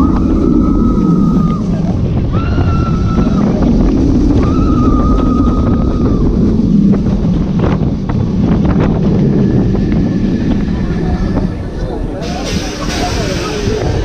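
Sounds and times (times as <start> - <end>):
riders screaming: 0.0 - 6.7
wind rush and track rumble: 0.0 - 14.0.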